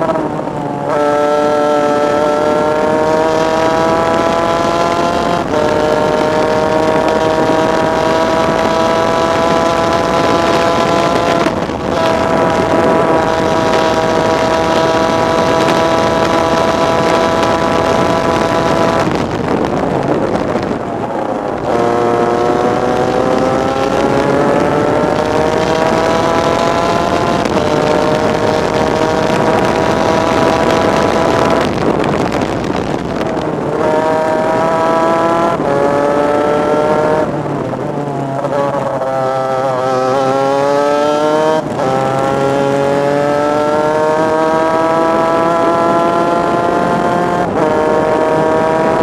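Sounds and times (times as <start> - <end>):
two-stroke kart engine revving: 0.0 - 49.0
wind rush over microphone: 0.0 - 49.0.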